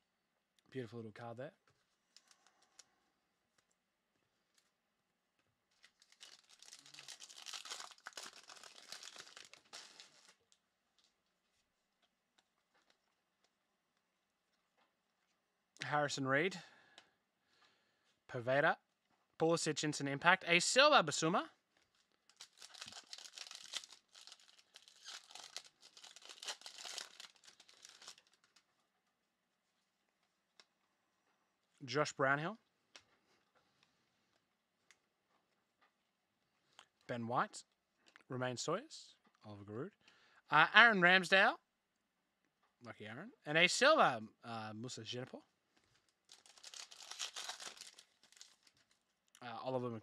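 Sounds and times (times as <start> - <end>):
foil wrapper tearing and crinkling: 5.7 - 10.5, 21.9 - 28.6, 46.0 - 49.1
faint clicks of cards handled: 32.9 - 36.0.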